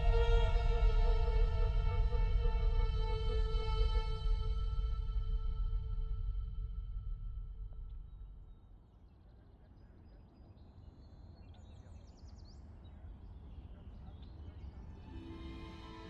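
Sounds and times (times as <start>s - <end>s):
low steady rumble: 0.0s - 8.7s.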